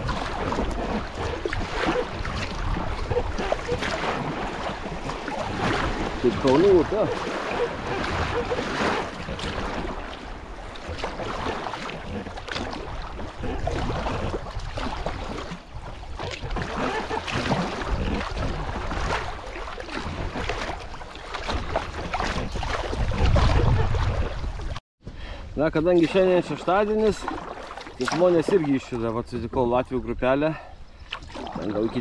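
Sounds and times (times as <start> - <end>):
paddle strokes splashing water: 0.0 - 24.8, 25.8 - 29.4, 30.9 - 32.0
wind buffeting microphone: 21.6 - 24.8.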